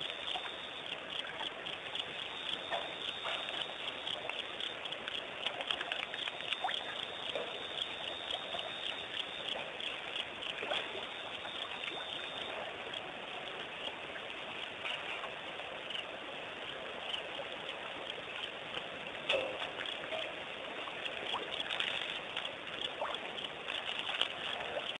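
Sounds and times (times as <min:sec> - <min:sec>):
steady hiss with ticks: 0:00.0 - 0:25.0.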